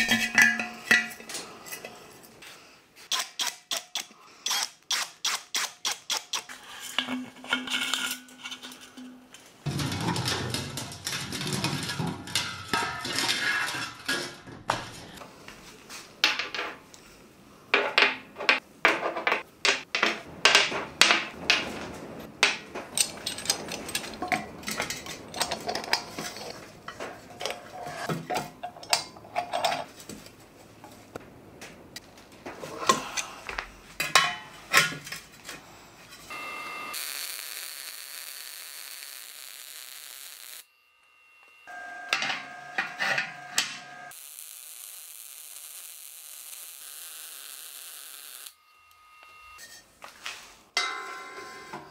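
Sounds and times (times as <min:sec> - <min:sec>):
metal tools clinking on pipe fittings: 0:00.0 - 0:02.4, 0:06.4 - 0:09.5, 0:22.9 - 0:30.0.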